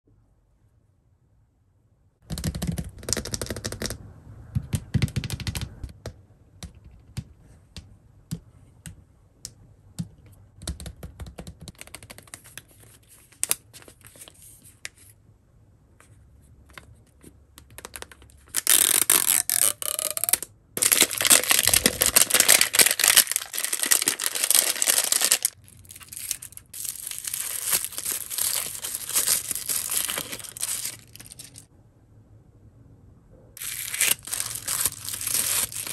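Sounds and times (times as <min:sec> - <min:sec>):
hands rustling packaging: 0:17.7 - 0:31.7, 0:33.6 - 0:35.9
wrapping tearing and crinkling: 0:18.0 - 0:31.7, 0:33.6 - 0:35.9.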